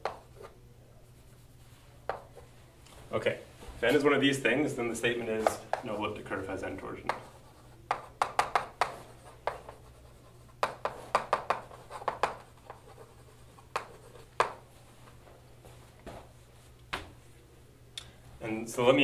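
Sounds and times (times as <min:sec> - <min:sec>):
chalk tapping and scraping on blackboard: 0:00.0 - 0:02.5, 0:05.1 - 0:14.8.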